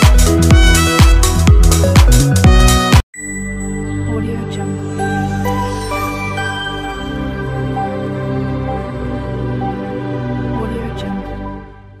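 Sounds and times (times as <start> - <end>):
music with held notes: 0.0 - 12.0
high chime: 3.1 - 8.4.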